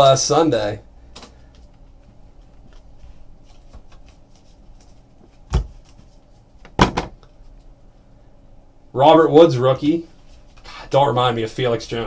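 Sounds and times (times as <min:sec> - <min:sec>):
trading cards rustling: 0:01.4 - 0:06.2
knocks: 0:06.7 - 0:07.2.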